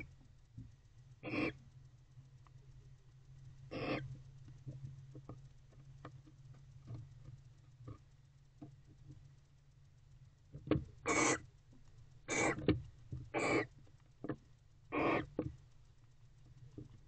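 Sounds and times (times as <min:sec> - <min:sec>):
owl hissing calls: 0:01.2 - 0:01.6, 0:03.7 - 0:04.1, 0:11.0 - 0:11.5, 0:12.3 - 0:12.6, 0:13.3 - 0:13.7, 0:14.9 - 0:15.4.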